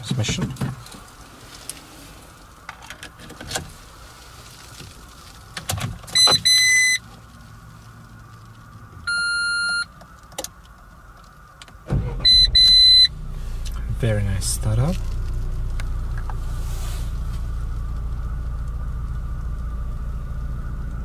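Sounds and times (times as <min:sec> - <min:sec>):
car warning chime beeping: 0:06.2 - 0:07.0, 0:09.0 - 0:10.0, 0:12.0 - 0:13.2.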